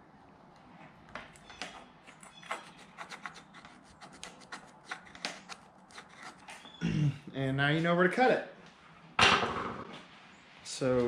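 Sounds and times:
screwdriver scraping metal tube: 1.5 - 6.7.

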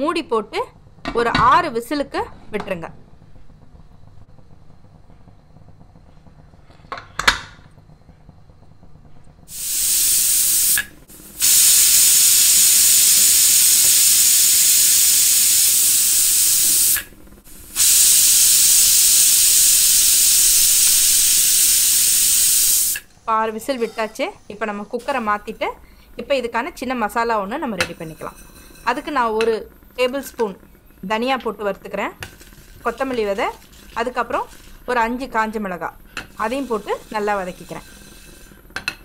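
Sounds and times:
pressure cooker steam hiss: 9.5 - 39.0.

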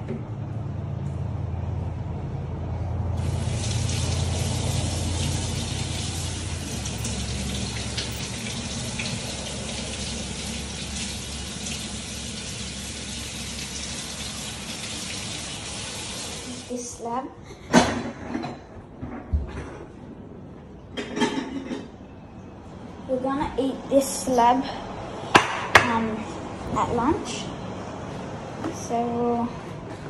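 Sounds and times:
tap water splashing into sink: 3.2 - 16.4.

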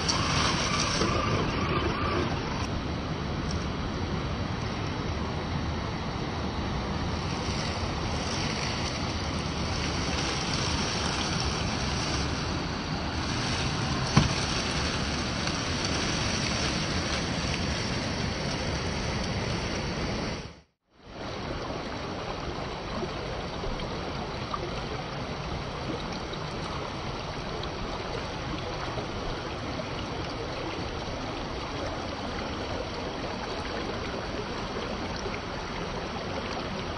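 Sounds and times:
waterfall rushing water: 6.9 - 20.2.

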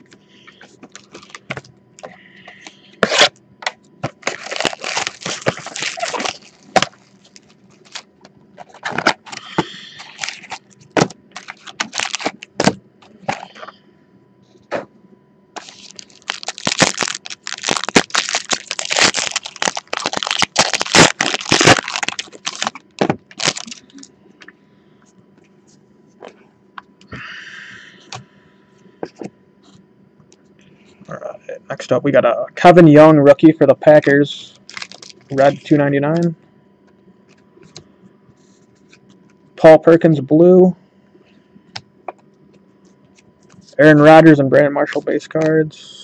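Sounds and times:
foil wrappers crinkling: 4.0 - 13.6, 15.6 - 24.1, 34.6 - 35.7.

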